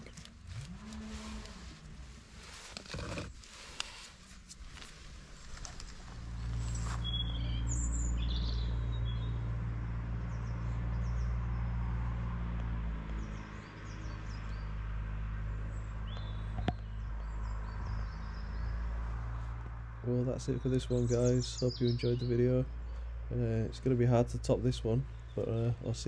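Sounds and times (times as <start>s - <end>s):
small birds chirping: 2.4s - 11.7s, 13.1s - 26.0s.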